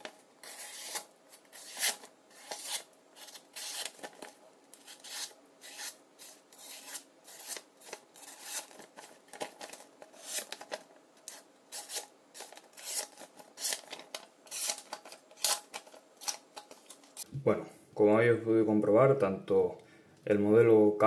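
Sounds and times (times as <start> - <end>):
knife slicing paper: 0.4 - 4.1, 4.8 - 9.0.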